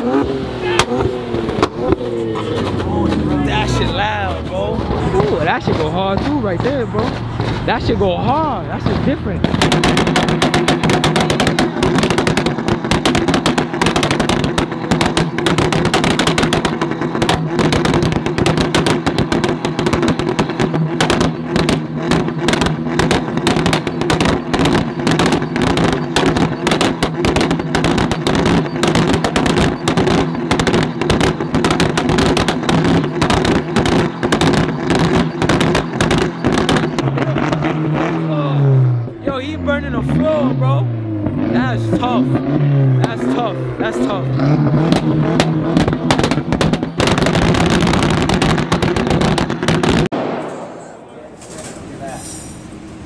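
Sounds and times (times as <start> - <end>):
car engine at steady revs: 0.0 - 50.0
exhaust pops and bangs: 0.0 - 50.6.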